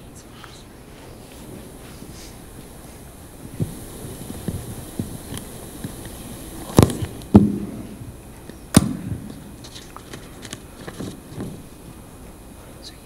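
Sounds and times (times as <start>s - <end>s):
sharp knocks and thumps: 6.7s - 11.7s.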